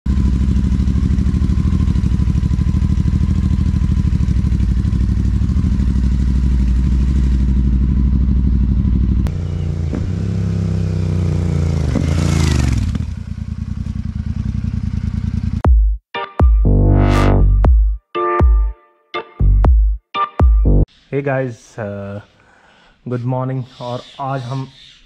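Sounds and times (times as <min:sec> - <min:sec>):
motorcycle engine idling: 0:00.1 - 0:15.7
motorcycle engine revving: 0:00.1 - 0:15.7.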